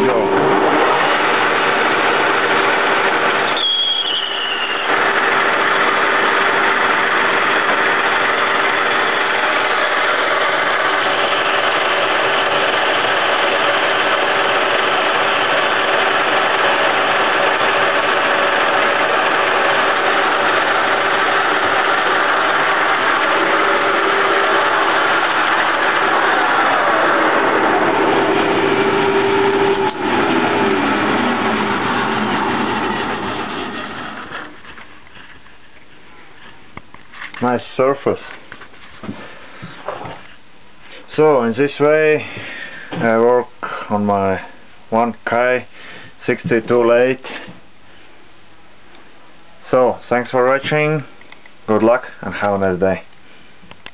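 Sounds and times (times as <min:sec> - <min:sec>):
lathe machine hum: 0:00.0 - 0:35.4
short high squeal: 0:03.5 - 0:04.9.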